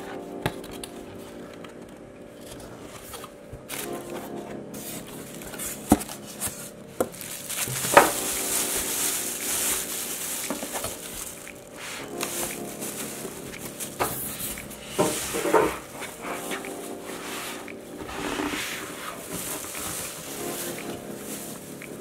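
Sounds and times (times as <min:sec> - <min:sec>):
background music: 0:00.0 - 0:22.0
plastic wrapping crinkling: 0:04.8 - 0:14.8, 0:17.9 - 0:22.0.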